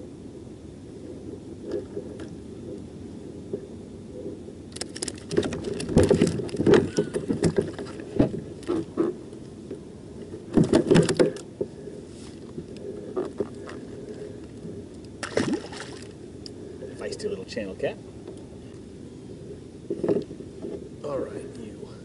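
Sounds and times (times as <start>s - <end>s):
knocks and rattles on a kayak: 4.8s - 9.2s, 10.3s - 11.5s.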